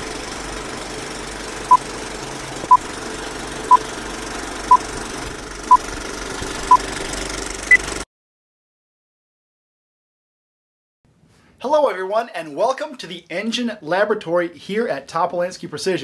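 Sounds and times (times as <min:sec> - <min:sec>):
steady mechanical clatter: 0:00.0 - 0:08.0.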